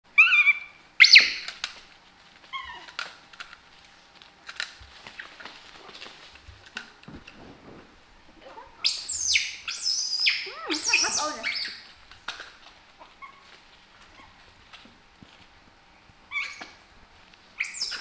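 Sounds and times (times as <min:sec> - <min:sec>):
baby monkey squealing: 0:00.1 - 0:01.5, 0:08.8 - 0:11.9, 0:16.3 - 0:16.8, 0:17.6 - 0:18.0.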